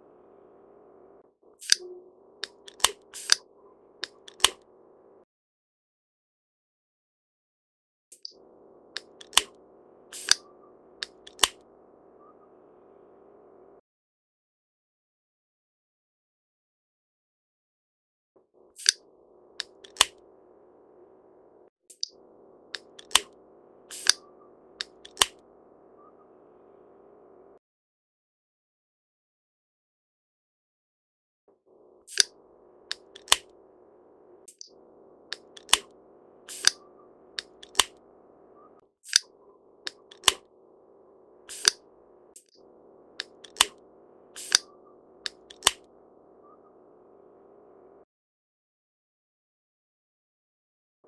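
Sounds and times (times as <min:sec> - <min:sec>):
faint background hum: 0:00.0 - 0:05.2, 0:08.3 - 0:13.8, 0:18.5 - 0:27.6, 0:31.7 - 0:48.0
woodpecker pecking wood: 0:08.9 - 0:11.6, 0:22.7 - 0:25.4, 0:32.1 - 0:33.6, 0:34.6 - 0:38.2, 0:39.8 - 0:40.5, 0:41.3 - 0:42.1, 0:43.1 - 0:45.9.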